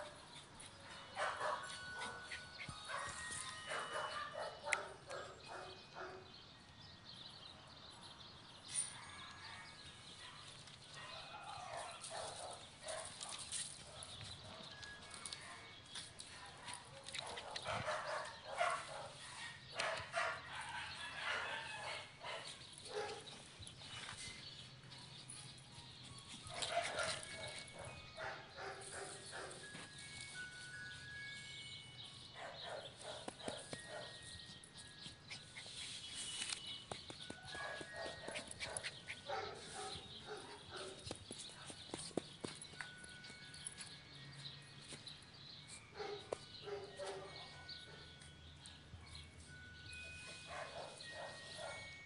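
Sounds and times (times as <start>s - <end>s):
dog paws tapping on turf: 0.0s - 6.1s, 8.4s - 49.5s, 50.1s - 52.0s
puppy barking: 1.2s - 2.3s, 2.9s - 6.3s, 17.2s - 23.3s, 26.5s - 29.6s, 32.4s - 34.2s, 37.6s - 41.0s, 46.0s - 48.0s, 50.4s - 51.8s
dog sounds: 26.4s - 29.6s, 37.1s - 42.2s.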